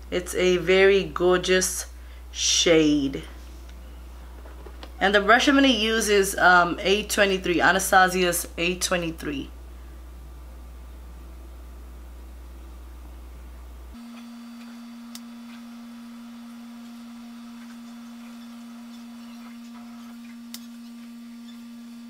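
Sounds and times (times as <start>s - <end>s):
low hum: 9.3s - 22.0s.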